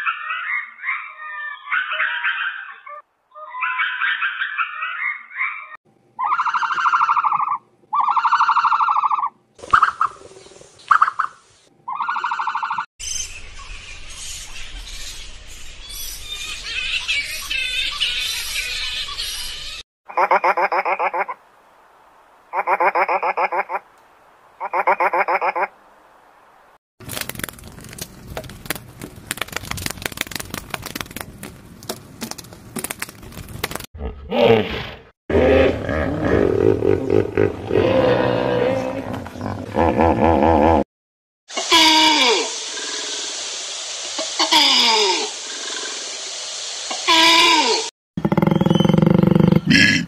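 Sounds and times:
animal calls: 0.0s - 10.2s, 10.9s - 12.9s
dense crackling and clicking: 27.0s - 31.6s
loud animal roar: 34.0s - 40.8s.

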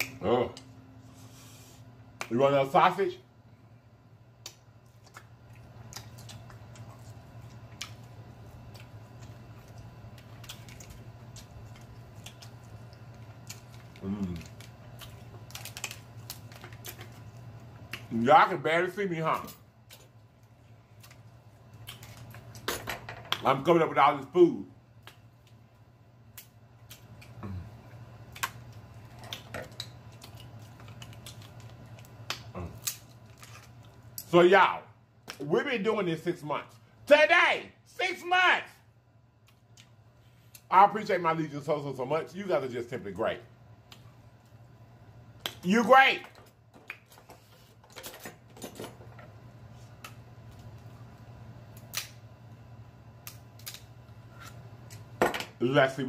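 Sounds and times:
faint low hum: 0.0s - 56.0s
eating clicks and smacks: 4.4s - 18.1s, 28.2s - 33.1s
seafood shell cracking: 10.1s - 18.1s, 28.3s - 34.2s, 51.7s - 52.2s, 53.2s - 54.0s
shell cracking: 51.7s - 52.2s, 53.2s - 53.9s.

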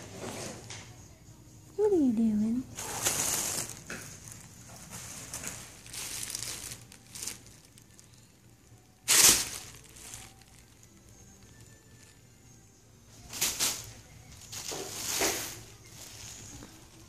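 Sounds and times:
plastic bag crinkling: 2.7s - 12.5s, 13.2s - 17.0s.

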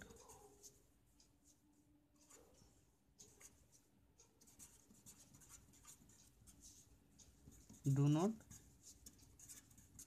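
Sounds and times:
felt-tip marker scratching: 2.2s - 10.0s.

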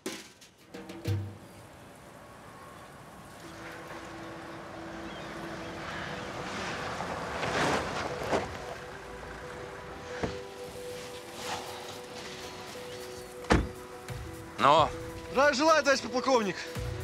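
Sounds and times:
car driving up: 1.2s - 12.7s.

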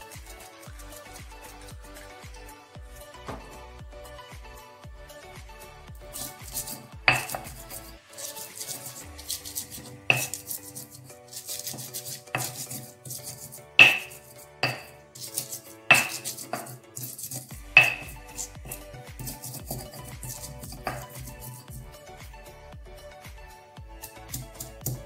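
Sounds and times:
pestle grinding in mortar: 6.0s - 21.9s, 24.0s - 25.0s
stone-on-stone knocks: 7.1s - 7.6s, 9.8s - 10.5s, 13.8s - 15.0s, 15.9s - 16.8s, 17.8s - 18.8s.

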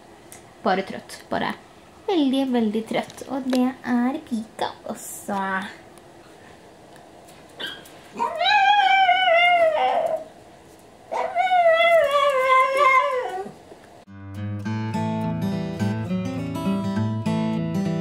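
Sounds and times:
animal wavering cries: 7.6s - 10.4s, 11.1s - 13.6s
acoustic guitar music: 14.1s - 18.0s.

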